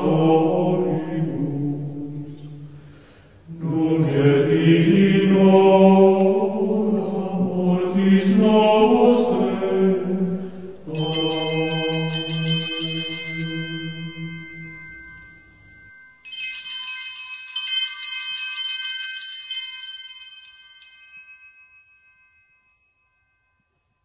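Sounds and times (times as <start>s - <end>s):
small altar bells ringing: 10.0s - 24.0s.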